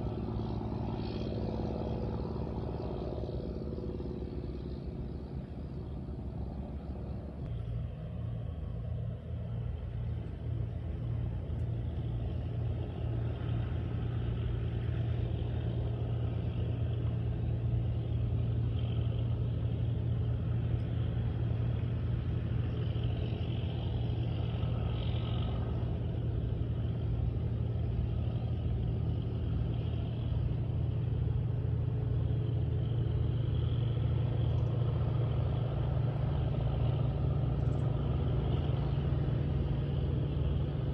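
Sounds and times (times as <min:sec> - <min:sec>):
boat diesel engines droning: 0:00.0 - 0:40.9.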